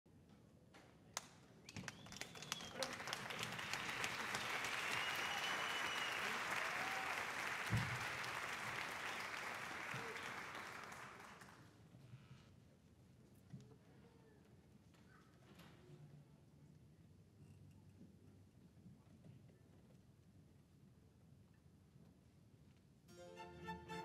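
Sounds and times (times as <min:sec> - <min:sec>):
audience applauding: 0:01.8 - 0:11.7.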